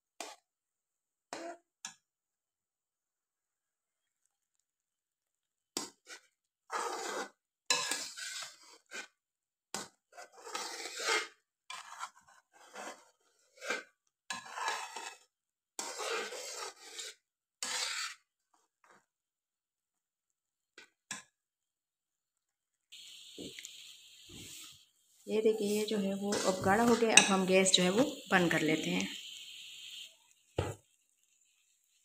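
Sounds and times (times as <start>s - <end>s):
metal spatula scraping a pan: 5.8s - 19.1s, 24.2s - 32.0s.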